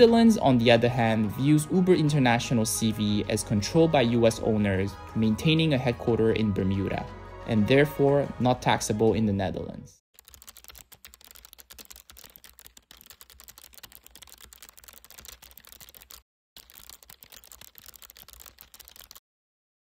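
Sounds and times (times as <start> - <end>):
keyboard typing clicks: 10.2 - 19.2.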